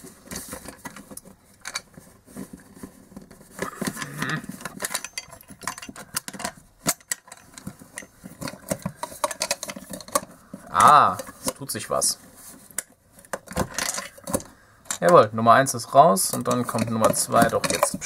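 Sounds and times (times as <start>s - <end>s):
plastic loudspeaker handling noise: 0.0s - 15.3s, 16.2s - 18.0s
loose screws rattling inside: 3.5s - 11.5s, 13.2s - 15.2s, 16.2s - 18.0s.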